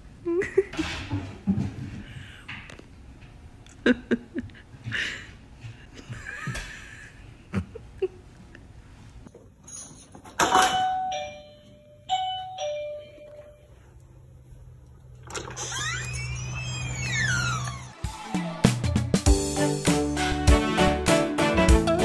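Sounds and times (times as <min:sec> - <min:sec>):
doorbell chime ding-dong: 0:10.7 - 0:13.7.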